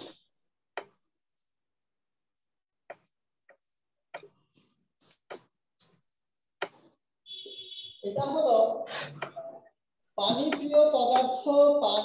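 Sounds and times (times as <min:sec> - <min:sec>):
marker scratching on whiteboard: 0:02.9 - 0:09.4.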